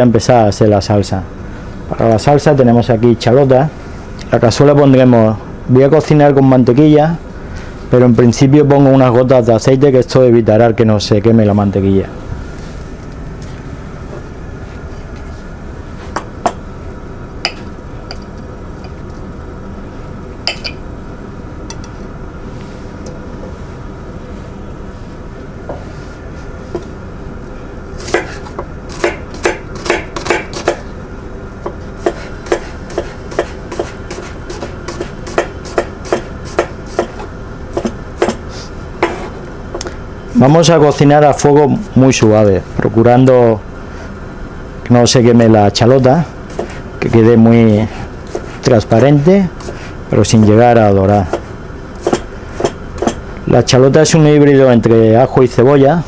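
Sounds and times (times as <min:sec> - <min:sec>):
knife chopping on wooden board: 0:28.0 - 0:30.8, 0:31.6 - 0:38.4, 0:39.0 - 0:39.4, 0:46.5 - 0:46.8, 0:48.3 - 0:48.6, 0:51.3 - 0:53.2.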